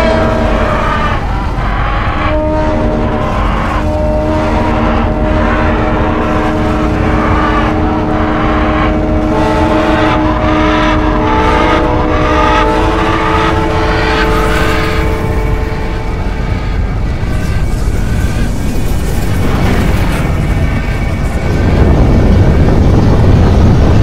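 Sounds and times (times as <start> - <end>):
steady horn-like tones: 0.0 - 24.0
traffic noise: 0.0 - 24.0.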